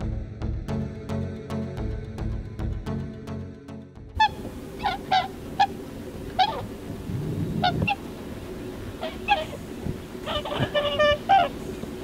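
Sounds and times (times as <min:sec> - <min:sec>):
geese honking: 0:04.2 - 0:12.0.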